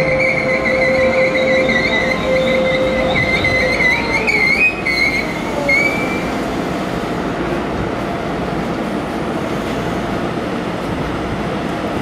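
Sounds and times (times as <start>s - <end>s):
high wavering squeal: 0.0s - 6.3s
train equipment hum and hiss: 0.0s - 12.0s.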